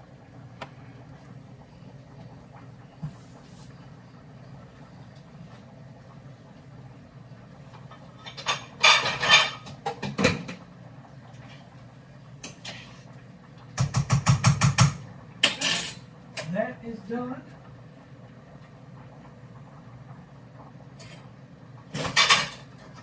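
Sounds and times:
steady low hum: 0.0 - 9.6
pots and dishes clattering: 7.7 - 10.7, 12.4 - 13.1, 13.7 - 16.6, 20.9 - 23.0.

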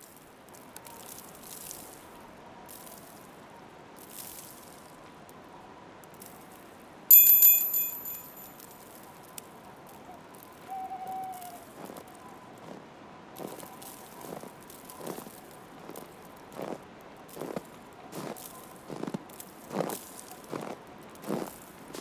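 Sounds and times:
bell-like chime: 7.1 - 8.5
owl hoot: 10.7 - 11.6.

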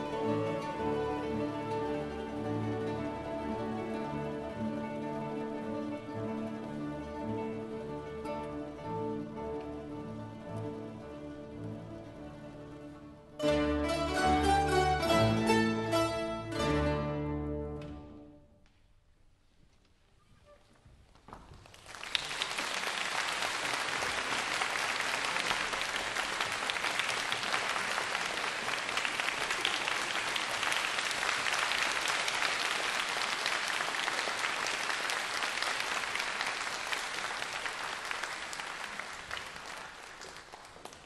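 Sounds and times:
audience applause: 21.5 - 41.0.

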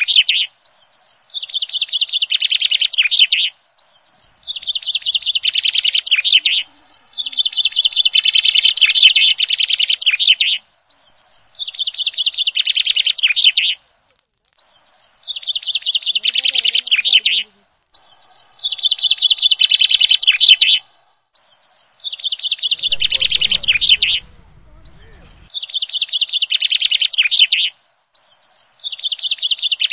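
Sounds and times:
bird chirping: 3.8 - 20.6, 21.8 - 25.6
low rumble: 22.8 - 25.5.

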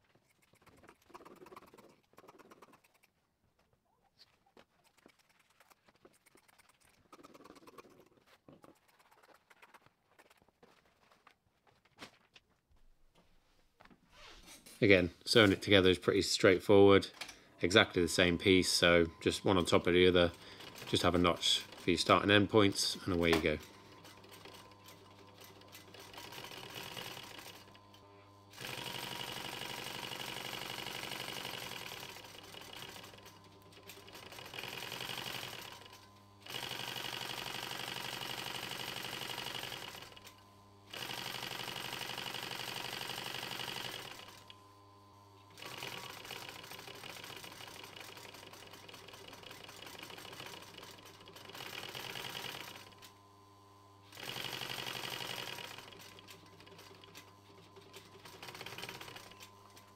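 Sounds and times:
industrial sewing machine stitching: 19.4 - 44.5, 45.6 - 53.1, 54.0 - 59.9.

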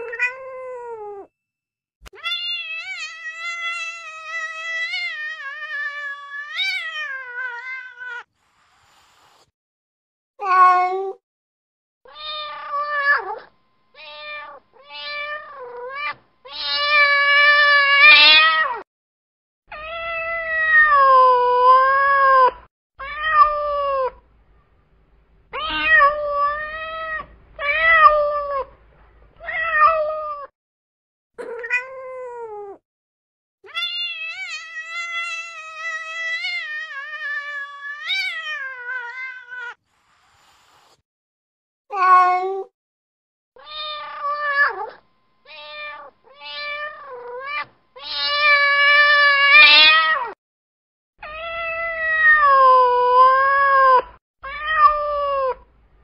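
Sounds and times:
cat meowing: 0.0 - 1.3, 2.1 - 8.3, 10.4 - 11.2, 12.1 - 18.8, 19.7 - 24.2, 25.5 - 28.8, 29.4 - 30.5, 31.4 - 32.8, 33.7 - 39.8, 41.9 - 42.7, 43.6 - 50.4, 51.2 - 55.7.

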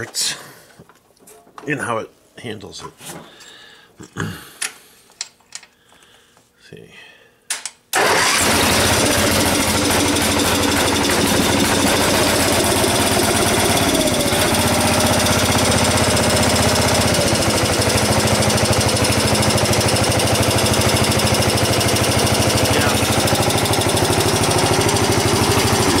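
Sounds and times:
garden tractor engine running: 8.0 - 26.0.

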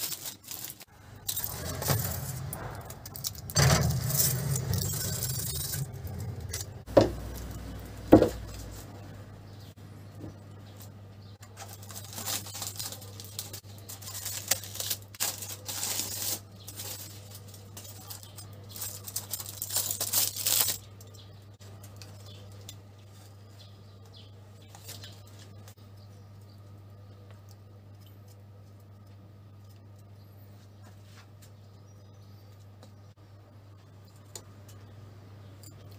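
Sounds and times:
foil crinkling and rustling: 0.0 - 6.7, 11.4 - 21.2.

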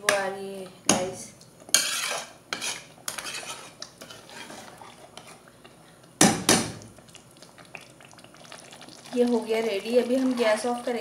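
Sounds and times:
metal ladle scraping pot: 1.7 - 5.4.

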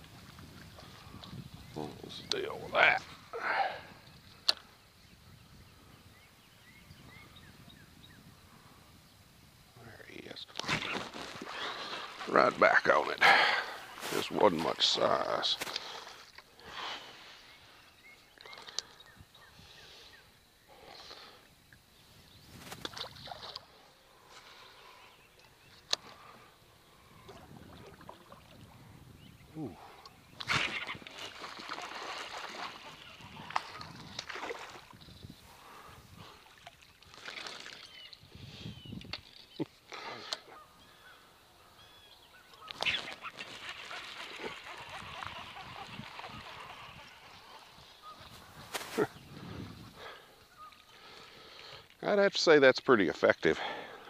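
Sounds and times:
birds calling: 0.6 - 8.8, 9.9 - 52.1
soft rustling: 48.2 - 49.2.

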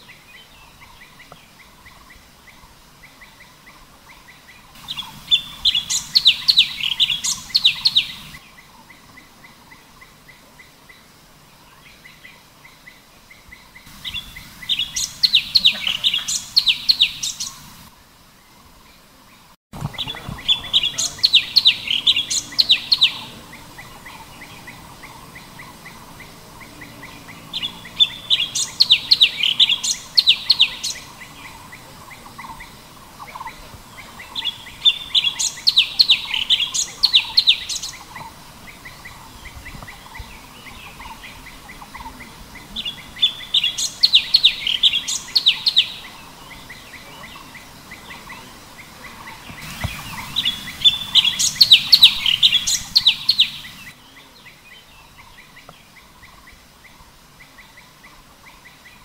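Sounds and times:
songbird singing high notes: 4.7 - 8.7, 13.8 - 17.9, 19.8 - 55.5.

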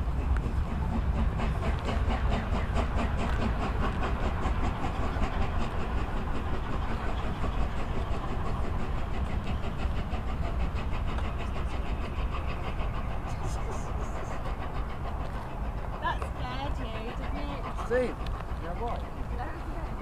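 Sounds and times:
steady low rumble: 0.0 - 20.0
steam locomotive exhaust beats: 0.0 - 20.0.

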